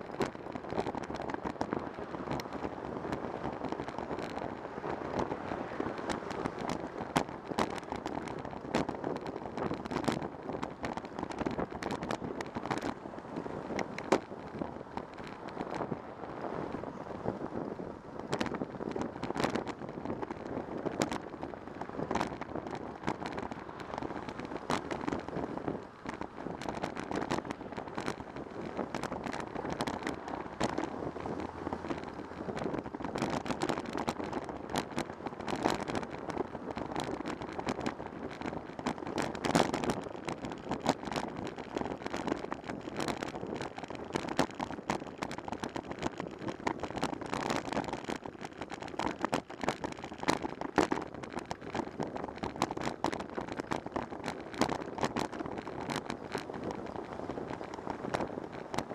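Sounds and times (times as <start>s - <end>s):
bicycle clicks and rattles: 0.0s - 58.9s
wind on microphone: 0.0s - 58.9s
car traffic passing: 30.9s - 32.4s.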